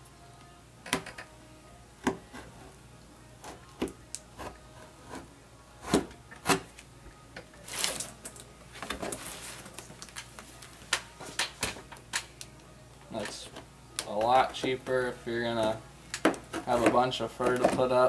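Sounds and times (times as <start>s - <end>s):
plastic sheet rustling: 7.6s - 8.2s, 9.0s - 10.8s.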